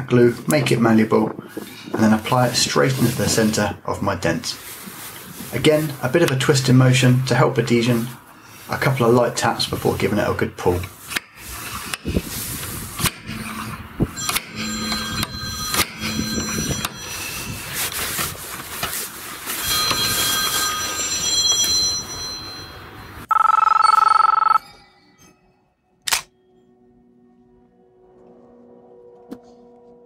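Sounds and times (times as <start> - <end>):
telephone ringing: 14.2 - 17.8, 19.5 - 25.0.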